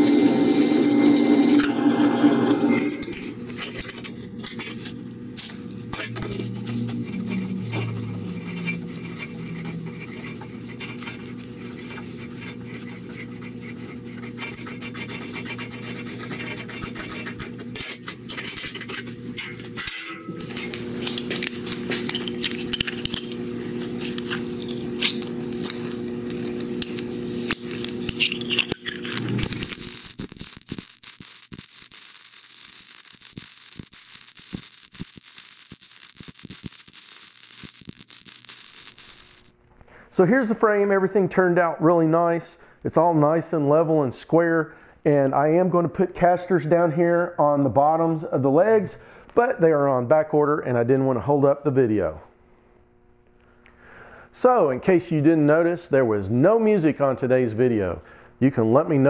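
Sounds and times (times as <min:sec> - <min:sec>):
drill press motor humming: 0:00.0 - 0:04.5, 0:05.1 - 0:30.8
welder arc crackling and hissing: 0:00.0 - 0:40.8
metal scraping and clinking: 0:00.5 - 0:39.5.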